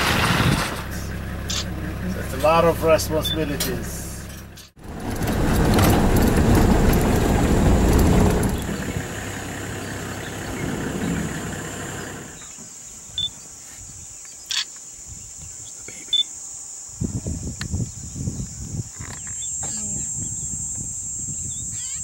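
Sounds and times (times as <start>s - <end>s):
vehicle rumbling on dirt track: 0.0s - 12.8s.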